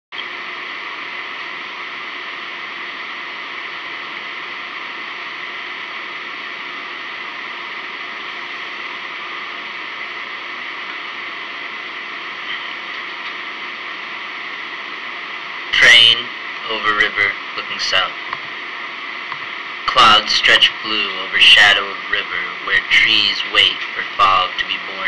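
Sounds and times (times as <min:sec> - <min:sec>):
faint hum: 0:00.2 - 0:25.0
steady hiss: 0:19.4 - 0:25.0.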